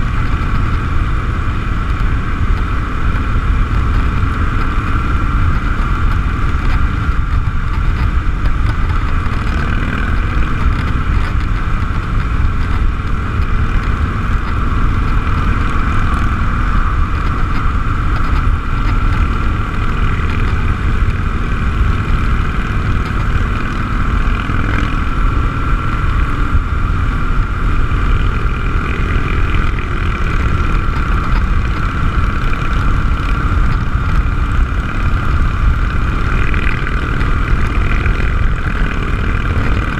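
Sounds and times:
motorcycle engine drone: 0.0 - 39.9.

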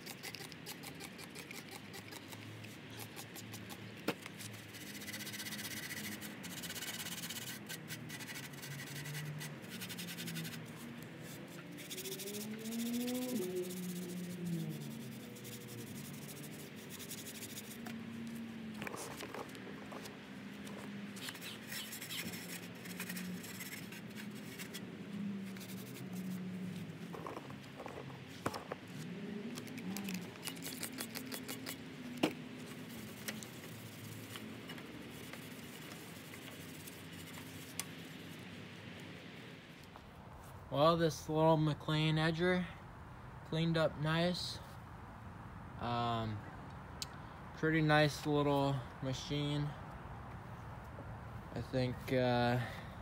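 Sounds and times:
spray bottle squirts: 21.2 - 23.8.

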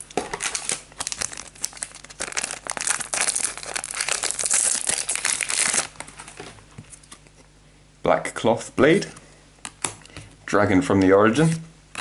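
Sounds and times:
wrapper crinkling and tearing: 0.0 - 6.4.

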